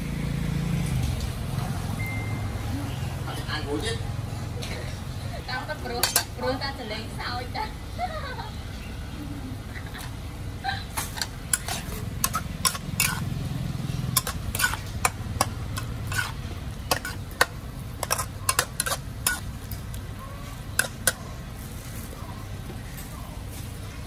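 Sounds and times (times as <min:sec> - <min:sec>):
metal spatula scraping a wok: 0:05.8 - 0:06.5, 0:10.9 - 0:22.2.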